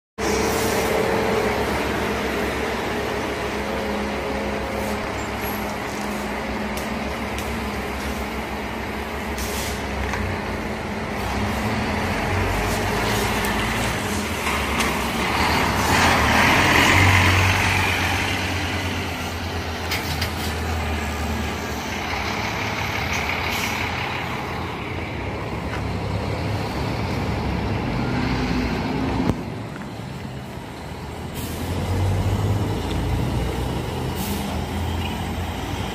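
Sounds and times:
bus diesel engine droning: 0:00.2 - 0:35.9
short air hisses: 0:09.4 - 0:09.9.

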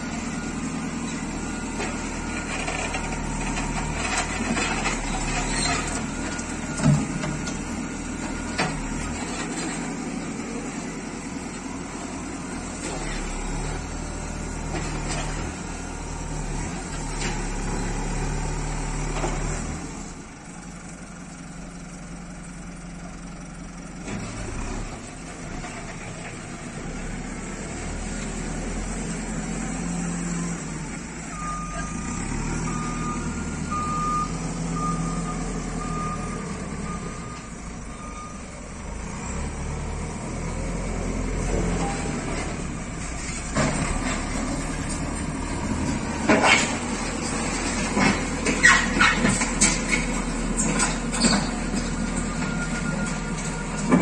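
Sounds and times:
reversing alarm beeping: 0:00.0 - 0:14.5, 0:30.3 - 0:39.4, 0:51.8 - 0:54.0
diesel engine running: 0:00.0 - 0:54.0.

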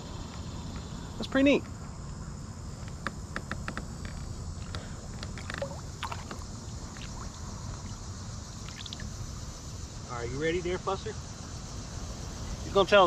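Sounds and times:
water movement around hull: 0:04.6 - 0:09.3.

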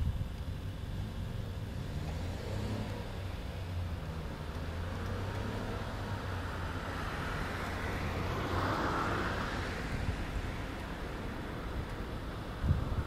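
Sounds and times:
vehicle passing: 0:01.7 - 0:11.8.

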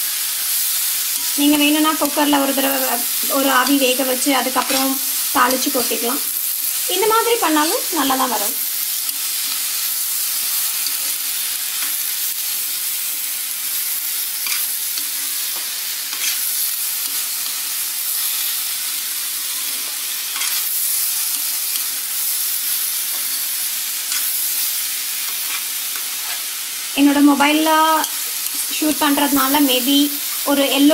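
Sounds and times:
vegetables sizzling in oil: 0:00.0 - 0:30.9
metal spatula scraping pan: 0:16.1 - 0:16.5.

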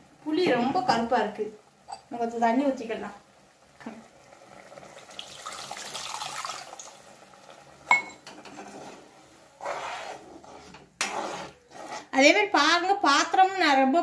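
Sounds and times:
water pouring into curry: 0:03.4 - 0:07.9
ladle scraping pan: 0:07.9 - 0:12.2.

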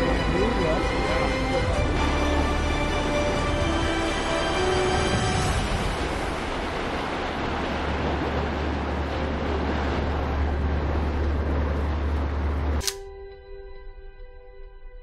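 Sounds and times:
churning wake water: 0:00.0 - 0:13.0
motorboat engine drone: 0:00.0 - 0:14.8
wind: 0:00.0 - 0:15.0
soft music with held notes: 0:12.8 - 0:15.0.

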